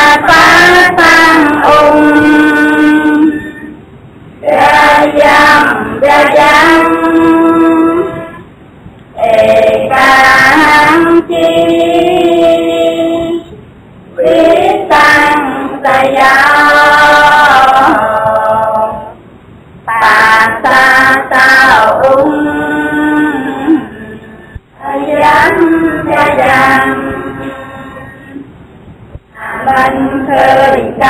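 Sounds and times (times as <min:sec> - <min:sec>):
woman singing: 0:00.0 - 0:03.8, 0:04.4 - 0:08.5.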